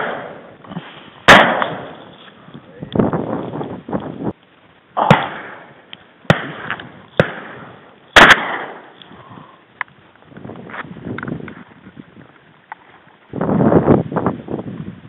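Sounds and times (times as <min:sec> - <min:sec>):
shotgun blasts with echo: 0:00.0 - 0:00.5, 0:01.2 - 0:02.0, 0:05.0 - 0:08.9.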